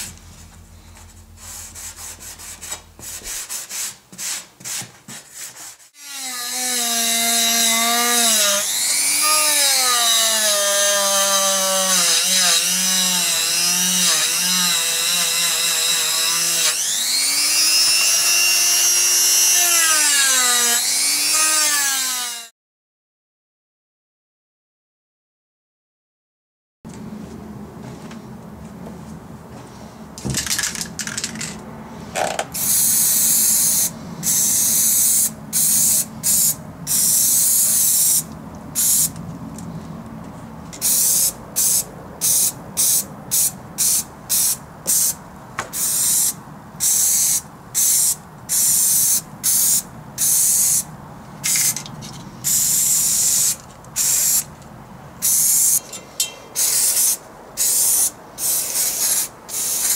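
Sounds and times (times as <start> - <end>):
aerosol can spraying: 56.6 - 59.9.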